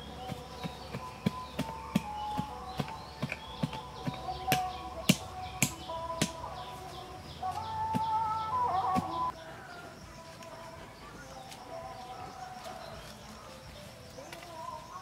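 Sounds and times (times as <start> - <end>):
digging blade chopping soil: 0.0 - 6.4
faint background bird chirping: 0.0 - 15.0.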